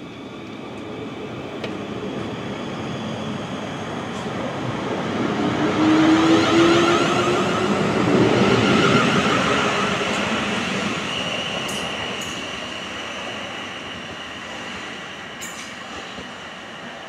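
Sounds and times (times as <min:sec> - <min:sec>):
train wheels running on rails: 0:00.2 - 0:17.0.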